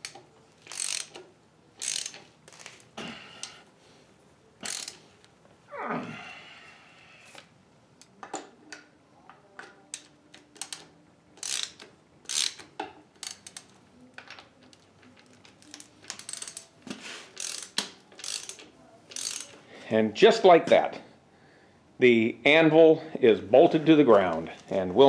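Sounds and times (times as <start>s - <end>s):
ratchet wrench clicking: 0.0s - 2.8s, 4.6s - 5.0s, 9.9s - 13.7s, 15.7s - 16.7s, 17.4s - 19.6s.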